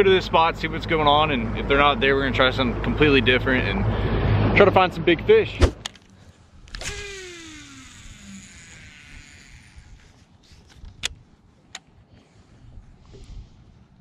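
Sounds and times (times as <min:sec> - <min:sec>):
boat motor whine winding down: 0:06.7 - 0:10.7
fishing reel clicks: 0:06.7 - 0:11.2.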